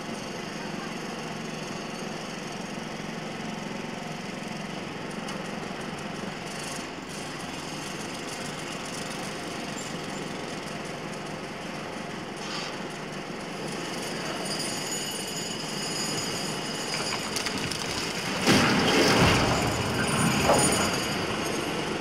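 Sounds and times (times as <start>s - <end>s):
breaking material knocks and crackles: 17.0s - 21.1s.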